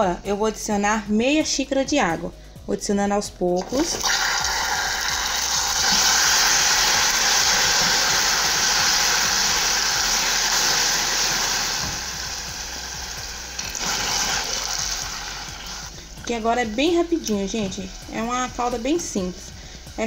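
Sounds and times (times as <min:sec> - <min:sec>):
caramel sizzling in a saucepan: 0:04.0 - 0:20.0.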